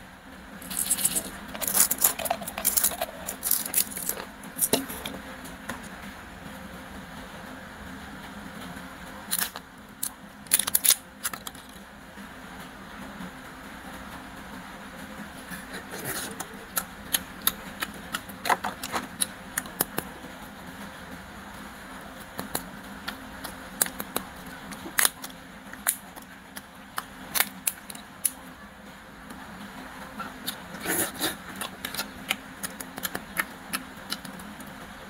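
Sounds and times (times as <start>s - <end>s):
faint steady hum: 0.0s - 35.0s
hard plastic packaging crackling: 0.6s - 5.9s, 9.3s - 11.8s, 15.8s - 20.1s, 22.2s - 28.4s.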